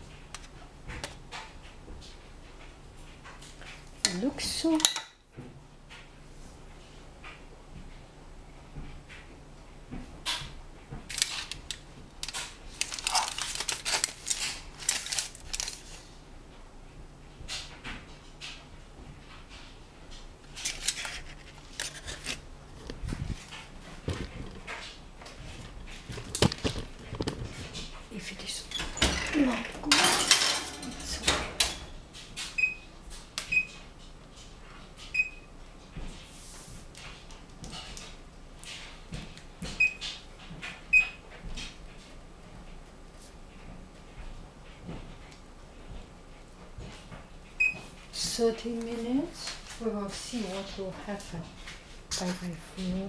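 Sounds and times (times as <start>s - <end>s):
aluminium foil crinkling: 11.1s - 16.1s, 20.5s - 24.9s, 25.8s - 27.9s, 52.1s - 53.0s
oven door shutting: 28.8s - 31.9s
pan clattering onto oven rack: 29.0s - 31.9s.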